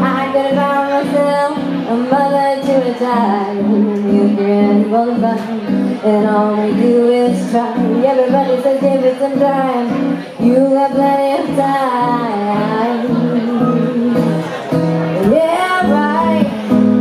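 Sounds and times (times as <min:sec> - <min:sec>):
woman singing: 0:00.0 - 0:14.6, 0:15.2 - 0:17.0
acoustic guitar strumming: 0:00.0 - 0:17.0.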